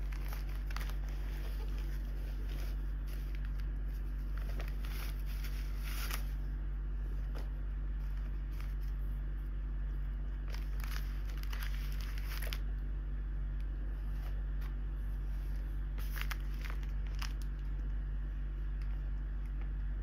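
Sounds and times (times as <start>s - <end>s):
fabric bag and tissue paper rustling: 0.0s - 6.5s, 10.4s - 12.6s, 15.1s - 17.7s
steady low hum: 0.0s - 20.0s.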